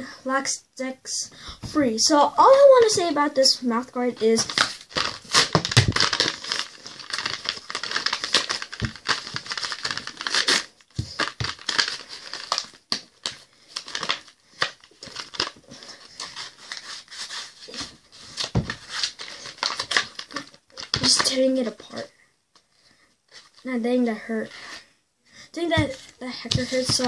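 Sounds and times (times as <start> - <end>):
packaging being torn open: 4.5 - 17.8, 18.4 - 21.3.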